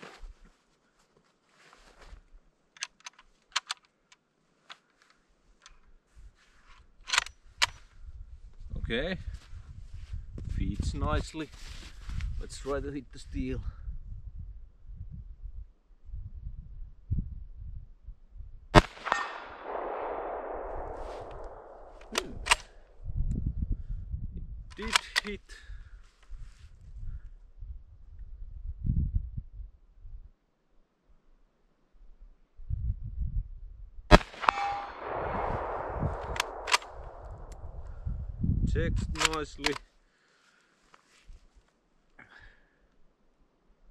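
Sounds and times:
rifle bolt metallic clicks: 2.8s - 4.8s, 18.8s - 22.8s, 24.7s - 25.4s, 34.1s - 37.9s, 39.0s - 39.8s
bullet ringing on steel target: 19.0s - 20.3s, 34.4s - 35.9s.

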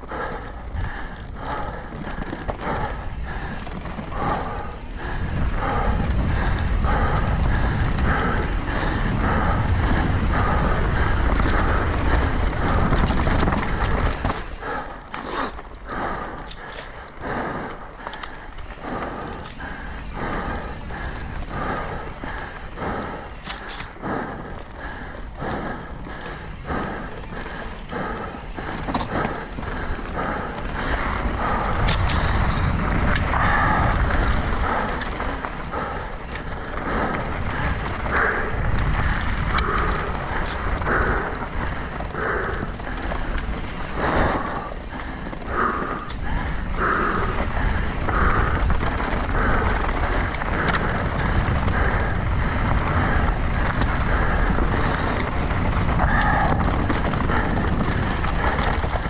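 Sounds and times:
bike tyre and trail noise: 0.0s - 59.0s
wind on microphone: 2.6s - 14.6s
regular pulsing: 18.6s - 32.3s.

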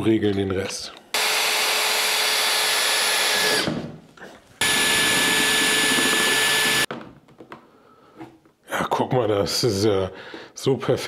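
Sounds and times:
power drill whining: 1.1s - 3.9s, 4.6s - 6.9s.

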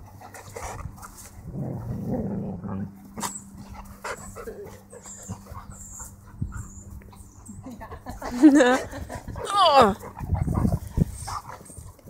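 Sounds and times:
dog growling: 1.4s - 3.3s.

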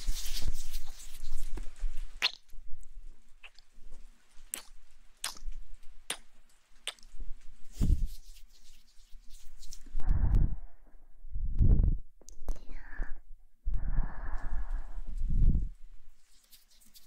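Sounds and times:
lip and tongue clicks: 2.2s - 2.5s, 3.4s - 3.7s, 4.5s - 7.1s.

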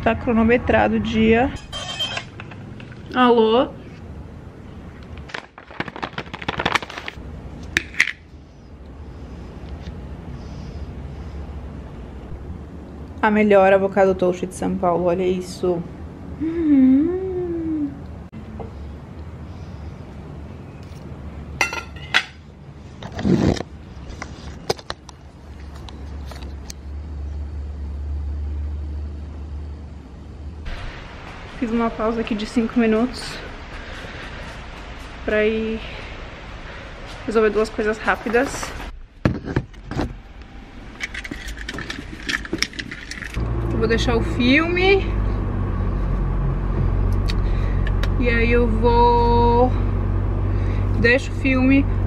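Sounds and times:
fork scraping: 1.6s - 2.4s
food packaging crackling: 5.1s - 7.2s
low steady rumble: 7.2s - 23.0s, 25.2s - 52.0s.

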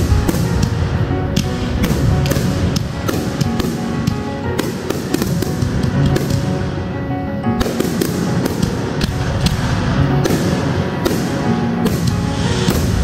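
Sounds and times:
fireworks bangs: 0.0s - 6.8s, 7.5s - 13.0s
music with held notes: 0.0s - 13.0s.

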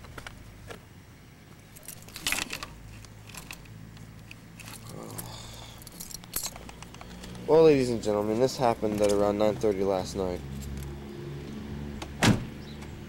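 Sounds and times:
steady low hum: 0.0s - 13.0s
faint clicks and rustles: 1.5s - 7.5s.

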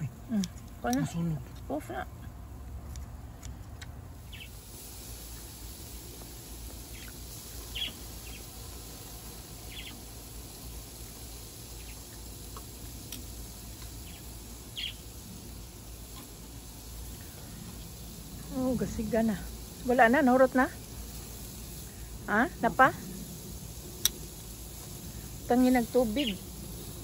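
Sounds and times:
low background rumble: 0.0s - 27.0s
steady hiss: 4.0s - 27.0s
birds chirping: 4.2s - 4.6s, 6.7s - 10.1s, 11.0s - 16.4s, 17.0s - 27.0s.

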